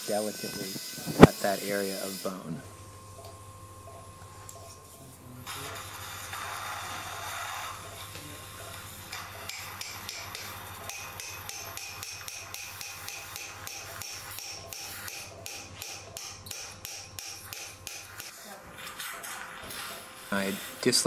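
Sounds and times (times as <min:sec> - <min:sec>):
mallet tapping metal chisel: 0:09.5 - 0:18.3
steady hiss: 0:19.6 - 0:21.0.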